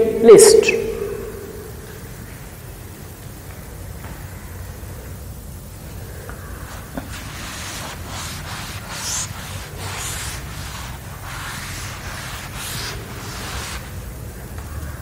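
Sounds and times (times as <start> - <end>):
low room hum: 0.0 - 15.0
chalk scratching on blackboard: 6.6 - 14.0.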